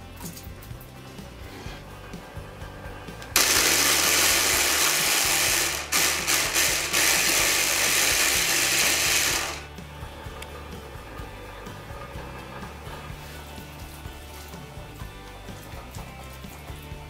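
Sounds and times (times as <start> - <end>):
hand blender chopping onion: 3.4 - 9.8.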